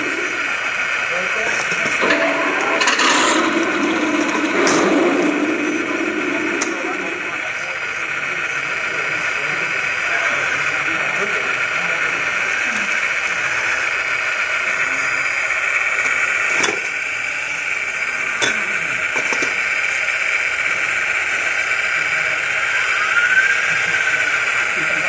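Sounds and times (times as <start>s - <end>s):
steady background noise: 0.0s - 25.0s
sharp knocks: 2.0s - 7.4s.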